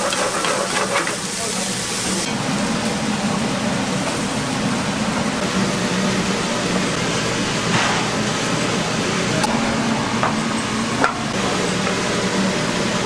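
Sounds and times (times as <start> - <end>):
kitchen hiss: 0.0 - 2.8
low hum: 4.8 - 13.0.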